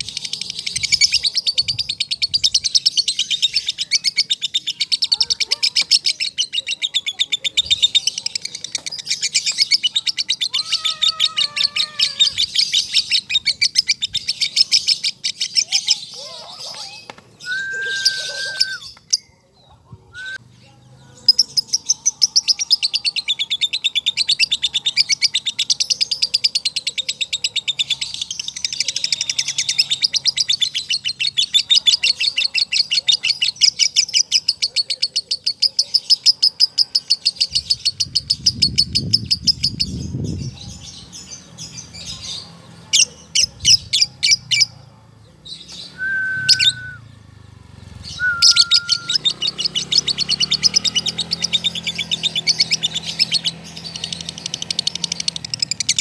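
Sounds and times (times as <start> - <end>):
lovebird rapid high chirps: 45.5 - 47.0, 47.9 - 56.0.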